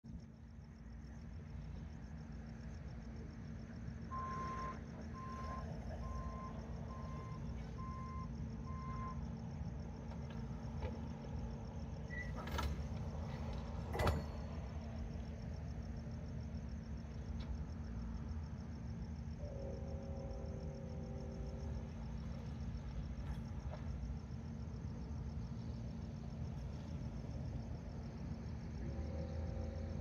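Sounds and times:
backup alarm beeping: 4.1s - 9.2s.

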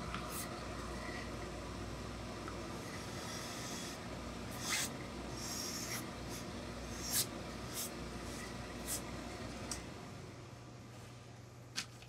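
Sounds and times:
steam iron hissing: 2.8s - 9.2s.

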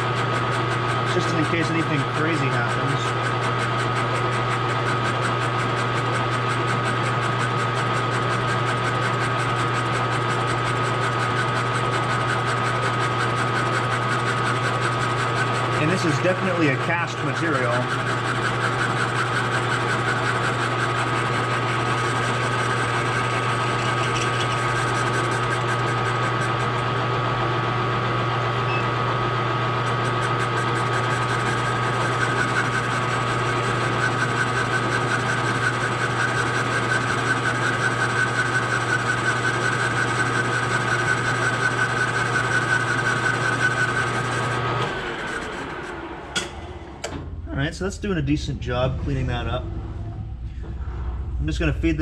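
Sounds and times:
lathe motor humming: 0.0s - 47.7s
lathe running down: 0.2s - 52.0s
boring bar rasping metal: 8.2s - 26.8s, 29.9s - 44.4s.

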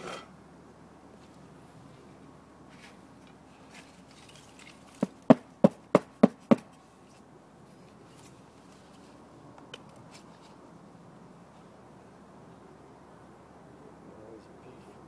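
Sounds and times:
knocks of beehive parts: 4.9s - 6.7s.

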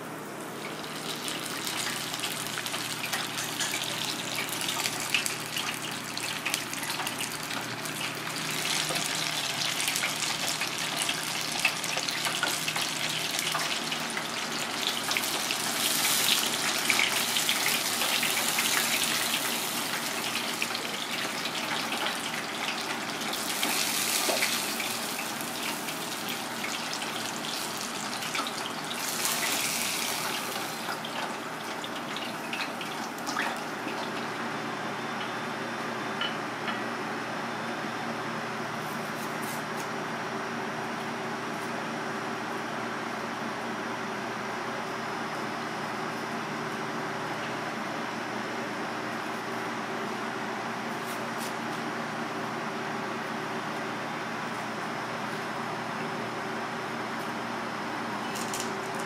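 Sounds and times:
fish deep-frying in oil: 0.5s - 34.5s.

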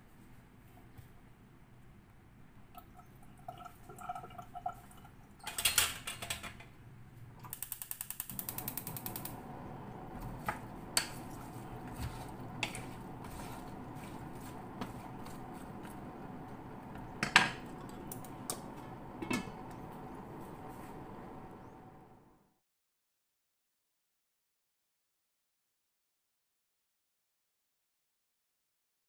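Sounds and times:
gas stove igniter clicking: 7.4s - 9.4s
gas burner hissing: 7.4s - 22.3s
pots and utensils knocking: 16.9s - 19.8s.

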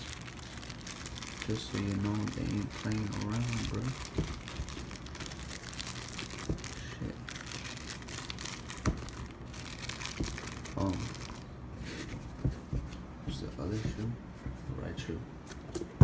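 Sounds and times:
plastic bag crinkling: 0.0s - 11.5s.

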